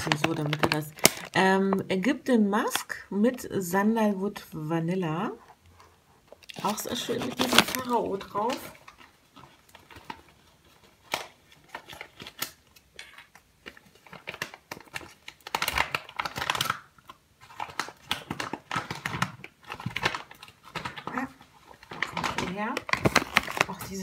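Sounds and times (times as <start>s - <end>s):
paper bag crinkling and rustling: 0.0s - 1.5s, 6.3s - 24.0s.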